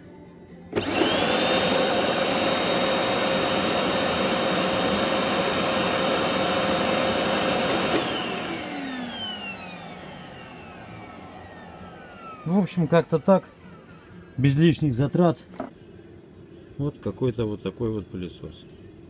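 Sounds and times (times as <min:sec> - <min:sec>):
vacuum cleaner motor whine: 0:00.7 - 0:14.6.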